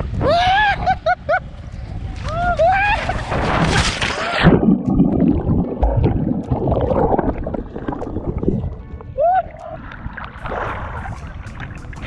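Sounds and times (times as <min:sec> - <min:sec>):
splash: 0:03.0 - 0:08.5, 0:10.2 - 0:12.0
muffled underwater gurgling: 0:04.3 - 0:12.0.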